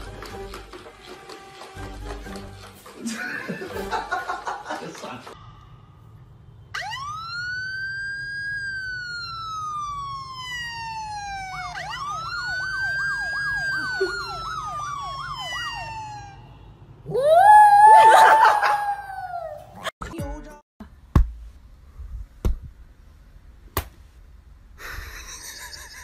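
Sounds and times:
police siren wailing: 6.7s - 19.6s.

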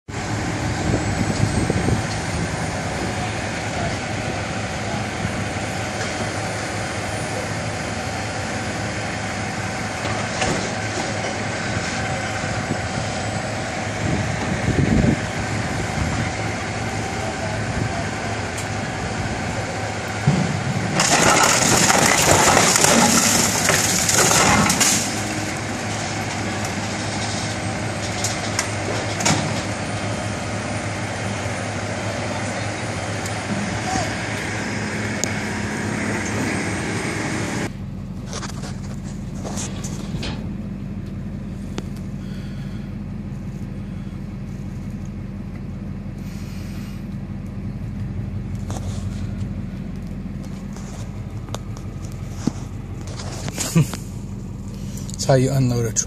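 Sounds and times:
heavy machinery humming: 0.1s - 56.0s
sheet metal crunching and grinding: 20.3s - 29.7s.

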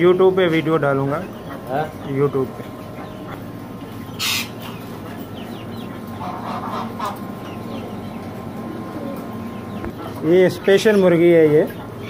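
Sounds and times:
chickens clucking: 0.0s - 12.0s
small cage birds chirping: 0.0s - 12.0s
sharp loud bird cry: 4.0s - 8.2s.

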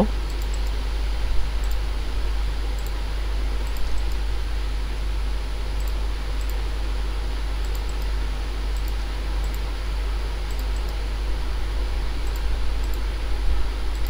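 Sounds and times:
faint high ticks: 0.3s - 0.8s, 1.6s - 1.8s, 2.8s - 3.0s, 5.8s - 6.6s, 7.6s - 8.1s, 8.8s - 9.7s, 10.5s - 11.0s, 12.3s - 13.0s.

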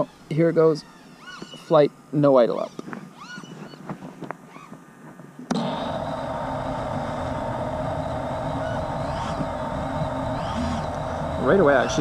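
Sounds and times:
drone motors idling: 5.5s - 12.0s.

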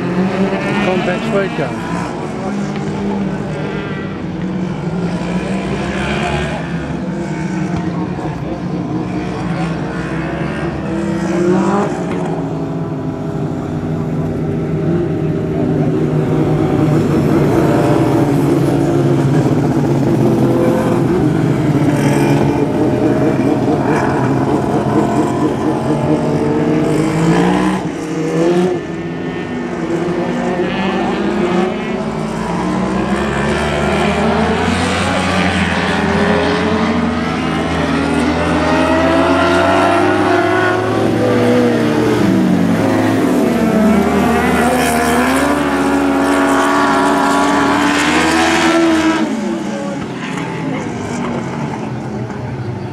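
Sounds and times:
racing car engines: 0.0s - 52.9s.

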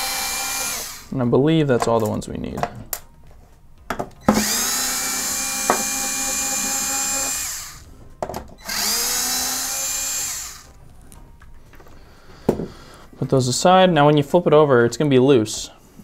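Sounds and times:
electric screwdriver motor running: 0.0s - 1.1s, 4.2s - 7.9s, 8.6s - 10.8s.

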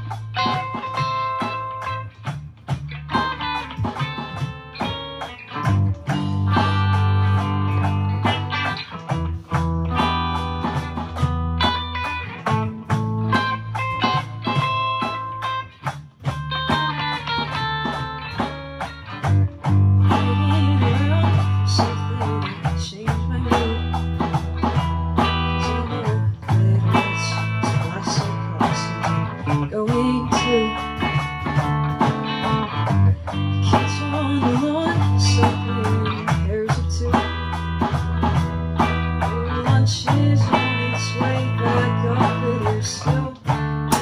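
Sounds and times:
rock band playing: 0.0s - 44.0s
person singing: 19.9s - 24.6s, 25.2s - 31.5s, 32.7s - 37.9s, 38.8s - 44.0s.

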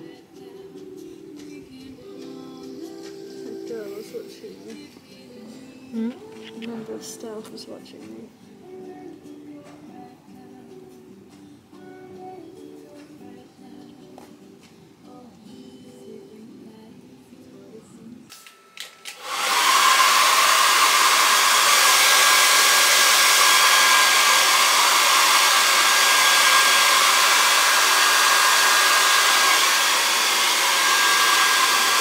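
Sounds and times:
electric blower motor running: 19.1s - 32.0s.

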